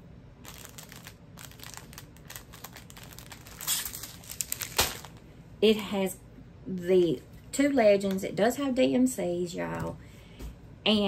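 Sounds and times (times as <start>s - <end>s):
plastic packaging crinkling: 0.4s - 5.3s.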